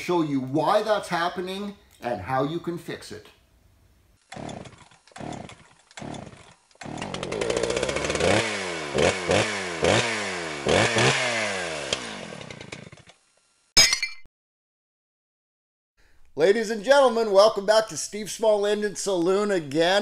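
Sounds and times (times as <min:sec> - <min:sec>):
small gas engine revving: 0:04.2 - 0:13.1.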